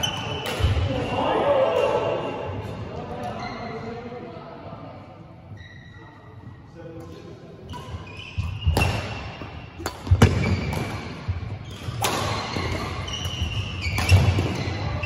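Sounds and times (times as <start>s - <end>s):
racket hitting shuttlecock: 7.8s - 14.8s.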